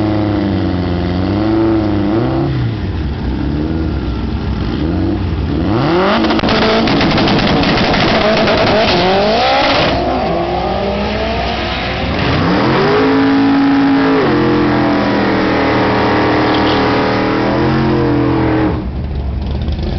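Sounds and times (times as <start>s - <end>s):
drag cars accelerating hard: 5.5s - 19.0s.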